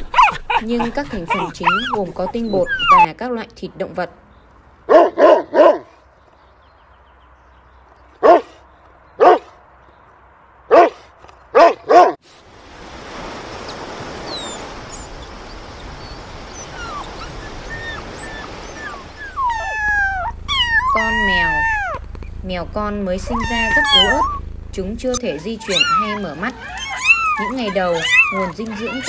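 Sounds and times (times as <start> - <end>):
dog barking: 0.0 - 2.0, 4.9 - 6.0, 8.2 - 8.6, 9.2 - 9.6, 10.7 - 12.2
sea surf rushing: 12.3 - 22.0
newborn kittens mewing: 19.2 - 22.0, 23.2 - 24.4, 25.2 - 29.0.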